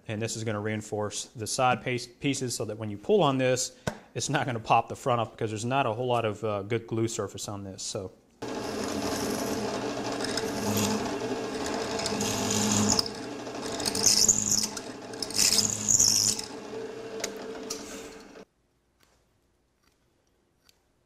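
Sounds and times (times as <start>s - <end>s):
drill bit cutting into wood: 8.4s - 18.4s
drill press motor hum: 8.4s - 18.4s.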